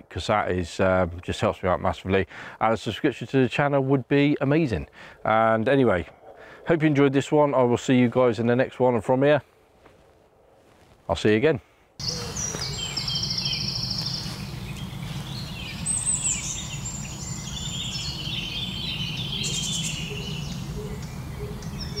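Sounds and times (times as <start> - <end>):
bird trill: 12.0 - 22.0
songbirds singing: 12.0 - 22.0
low outdoor rumble: 12.3 - 22.0.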